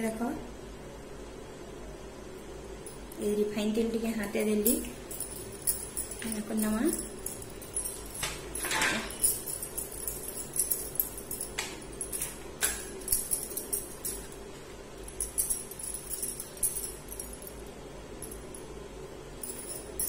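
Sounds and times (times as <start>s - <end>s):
light metallic jingling clinks: 4.3s - 18.8s, 19.4s - 20.0s.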